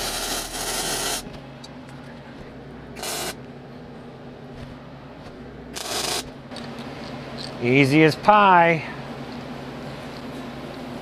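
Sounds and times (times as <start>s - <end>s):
arc weld crackle and hiss: 0.0s - 1.3s, 3.0s - 3.4s, 5.7s - 6.4s
steady low hum: 0.0s - 11.0s.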